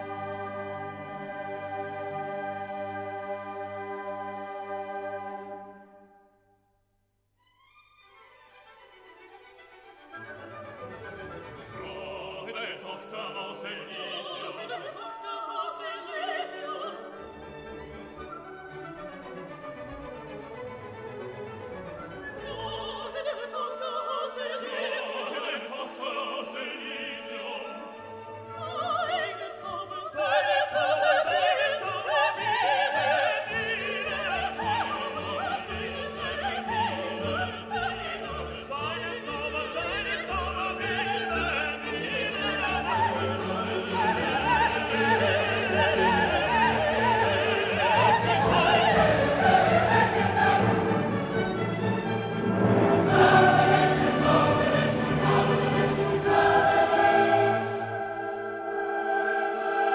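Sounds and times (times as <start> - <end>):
orchestral music: 0.0 - 6.4, 7.5 - 59.9
operatic singing: 11.1 - 19.2, 21.8 - 59.9.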